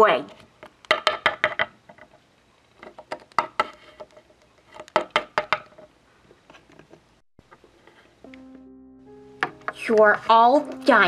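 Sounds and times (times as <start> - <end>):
plastic toys tapping on wooden floor: 0.6 - 2.2, 2.8 - 4.2, 4.8 - 5.9.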